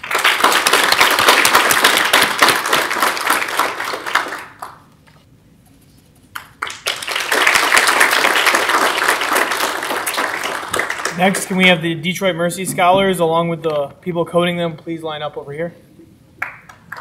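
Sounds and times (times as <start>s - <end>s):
audience applauding: 0.0s - 4.9s, 6.4s - 11.7s, 16.4s - 17.0s.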